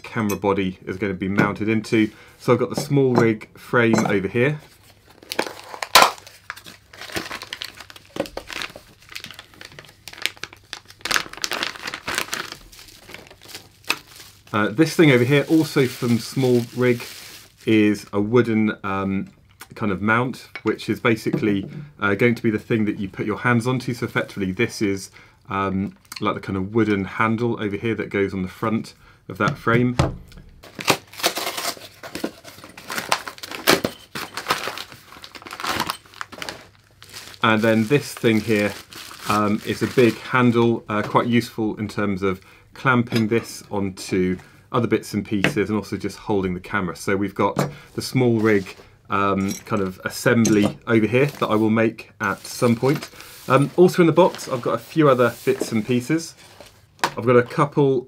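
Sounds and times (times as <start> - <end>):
plastic bags crinkling: 4.8 - 18.1, 30.6 - 41.5, 52.3 - 56.9.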